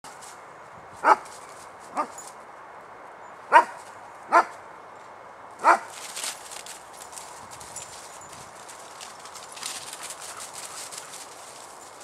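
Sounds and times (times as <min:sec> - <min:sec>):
dog barking: 0:03.5 - 0:04.5, 0:05.6 - 0:05.9.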